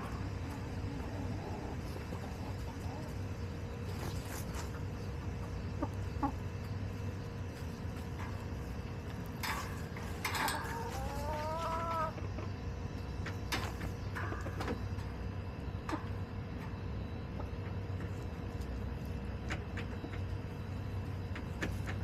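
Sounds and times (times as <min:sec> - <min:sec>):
chickens clucking: 0:00.0 - 0:22.0
drawn-out rising chicken call: 0:10.4 - 0:12.5.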